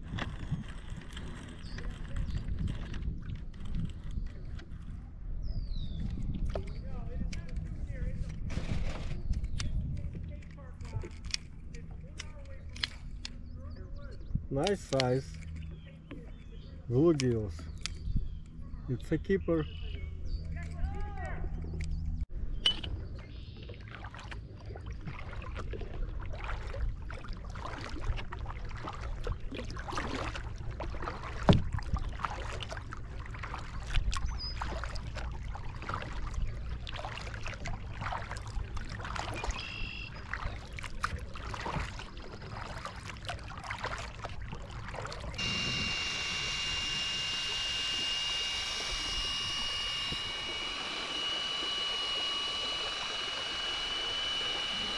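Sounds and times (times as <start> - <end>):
motor whine: 23.0 - 54.9
kayak paddle splashes: 23.2 - 54.9
rushing water: 23.8 - 49.0.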